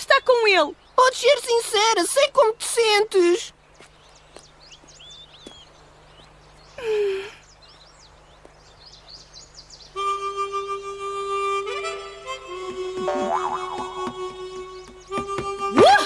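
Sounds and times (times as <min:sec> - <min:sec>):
faint birds chirping: 0:00.0 - 0:16.0
music with held notes: 0:10.0 - 0:16.0.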